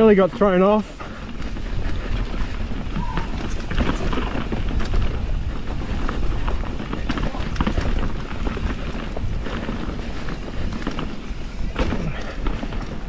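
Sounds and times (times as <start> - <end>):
bike rattling over rough ground: 0.0 - 13.0
wind buffeting microphone: 0.0 - 13.0.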